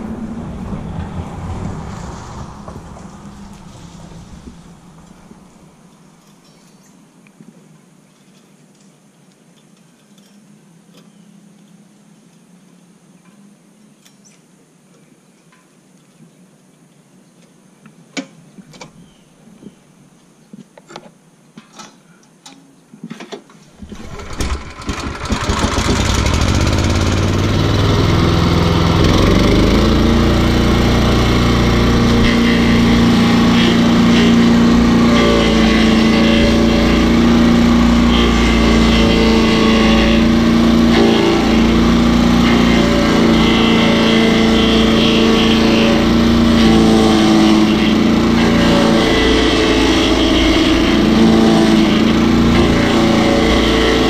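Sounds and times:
small gasoline engine running: 23.8 - 54.0.

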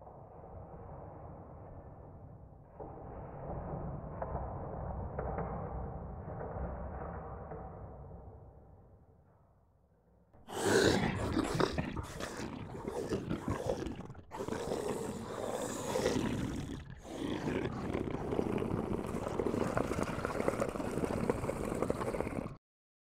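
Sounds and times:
deep rough growling roar: 10.4 - 22.6.

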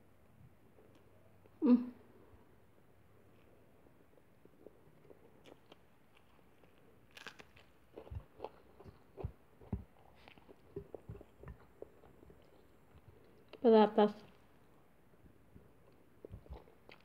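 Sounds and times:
chewing clicks and thumps: 4.0 - 13.6, 15.2 - 17.0
crisp bite into vegetable: 5.4 - 9.3.

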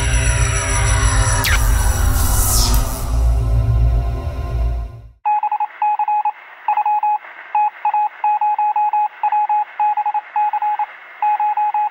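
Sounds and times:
electronic dialing beeps: 5.3 - 11.9.

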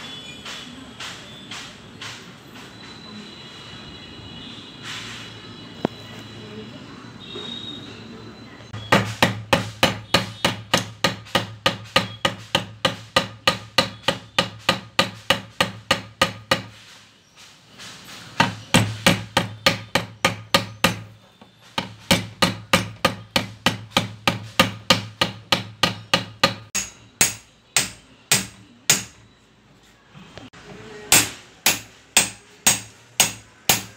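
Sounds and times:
hammer striking metal: 8.8 - 16.8, 18.4 - 21.2, 21.8 - 29.3, 31.1 - 33.9.

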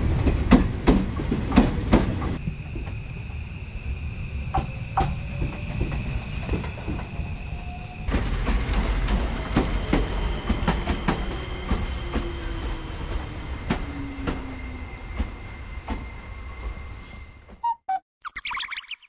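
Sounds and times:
electric train rumbling: 0.0 - 17.6
steady high-pitched tones: 18.2 - 19.0.

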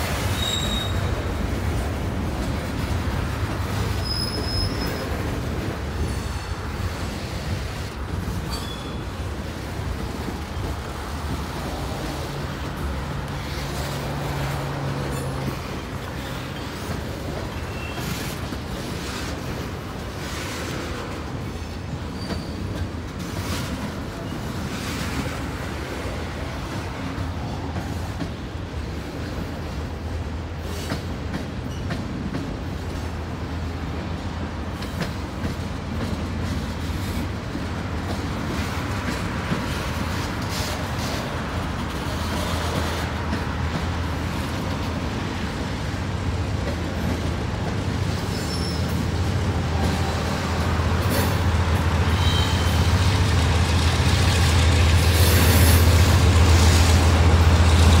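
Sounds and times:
freight cars rumbling: 0.0 - 58.0.

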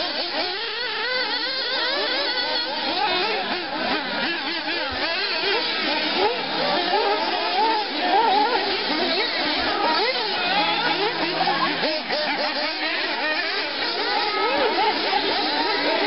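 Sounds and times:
rc buggy engines revving: 0.0 - 16.0.

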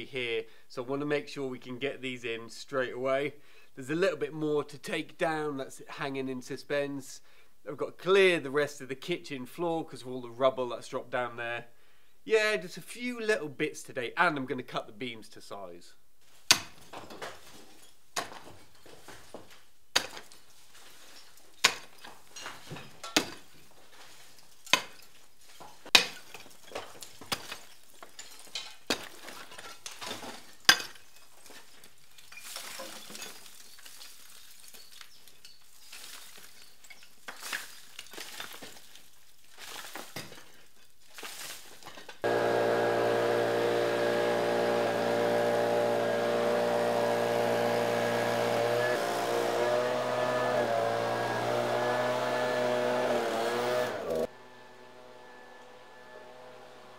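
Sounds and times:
blower engine running: 42.2 - 56.9.

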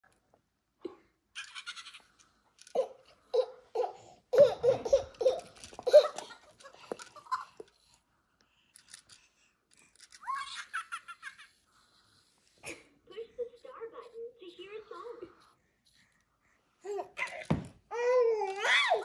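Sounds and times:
baby-like giggling: 1.4 - 2.1, 2.8 - 7.6.

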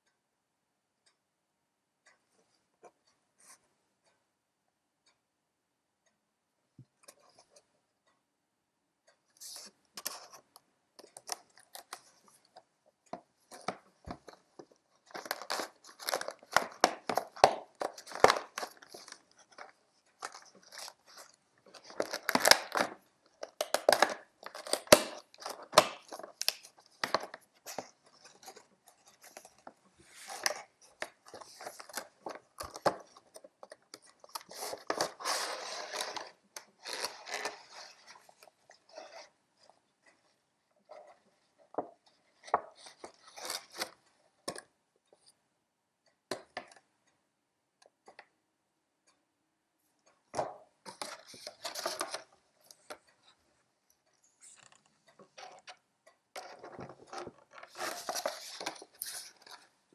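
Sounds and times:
rustling packaging: 13.5 - 39.3, 50.9 - 53.0, 56.4 - 59.8.

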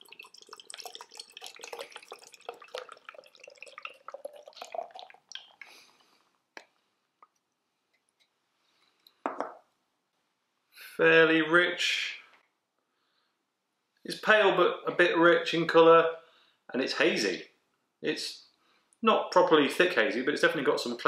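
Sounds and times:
beer pouring into a glass: 0.0 - 6.0
drips: 0.0 - 6.2.

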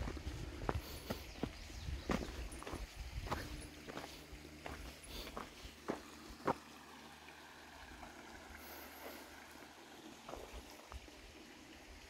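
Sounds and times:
footsteps on dirt and rock: 0.0 - 6.6, 10.3 - 10.7
creek flowing: 0.0 - 12.0.

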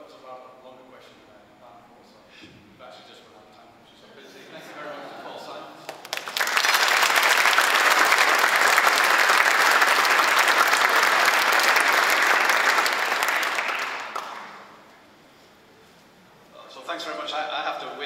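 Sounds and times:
audience applauding: 5.8 - 14.7.

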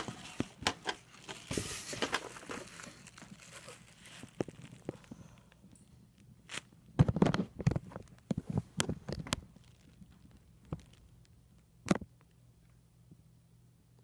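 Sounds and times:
handling knocks and rustles: 0.0 - 5.1
faint low hum: 0.0 - 14.0.

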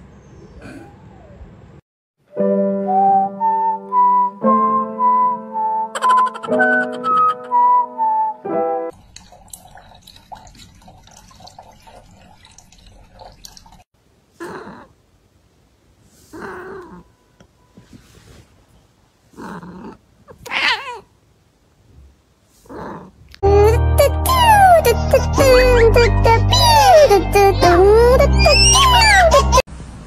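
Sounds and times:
cat lapping water: 8.9 - 13.8
cat meowing: 20.3 - 21.1.

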